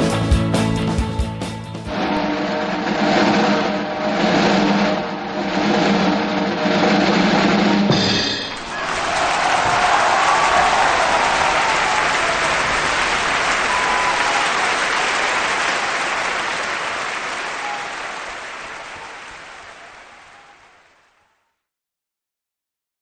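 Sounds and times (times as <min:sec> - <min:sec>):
crowd applause: 0:08.5 - 0:21.4.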